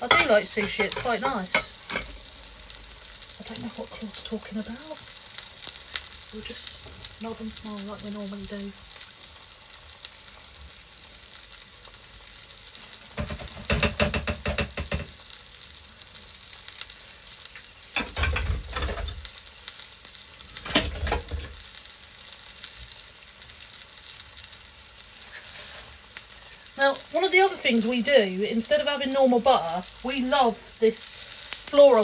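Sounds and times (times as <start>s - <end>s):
fish sizzling in a pan: 0.0s - 32.0s
clattering: 18.0s - 19.2s.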